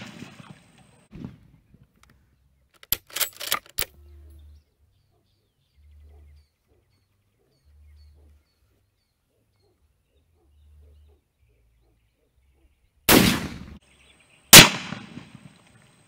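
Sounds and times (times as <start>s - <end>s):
rifle bolt metallic clicks: 2.0s - 4.0s
faint bird chirps: 3.9s - 13.0s.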